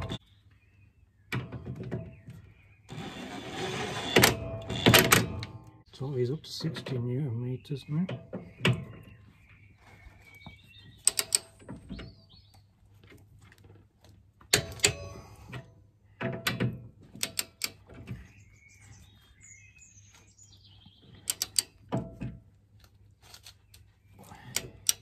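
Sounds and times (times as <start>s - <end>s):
birds chirping faintly: 5.8s - 13.0s, 17.2s - 22.0s.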